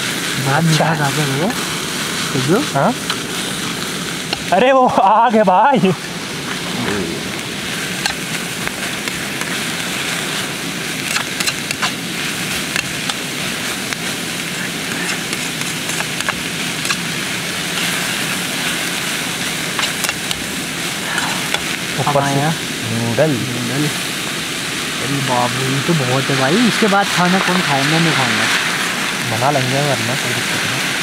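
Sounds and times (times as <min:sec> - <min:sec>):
vegetables sizzling in oil: 0:00.0 - 0:31.0
spoon scraping a pan: 0:07.7 - 0:09.6, 0:11.0 - 0:14.1, 0:14.9 - 0:17.1, 0:17.7 - 0:20.5.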